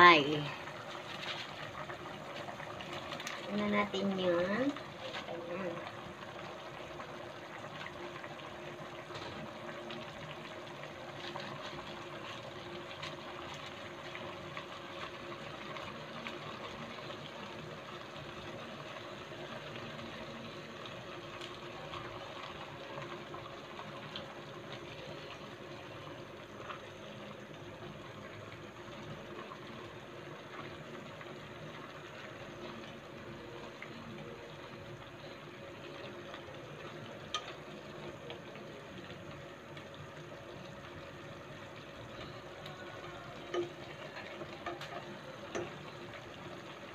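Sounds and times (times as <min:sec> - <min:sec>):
soup boiling in a pot: 0:00.0 - 0:46.9.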